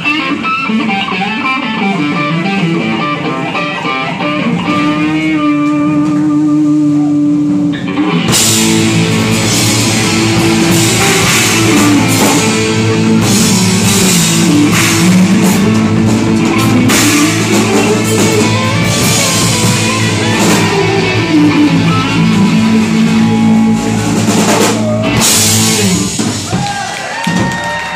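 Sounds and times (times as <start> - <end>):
electric guitars holding notes: 0.0 - 26.6
live rock band playing: 0.0 - 27.9
drums beat: 6.9 - 27.9.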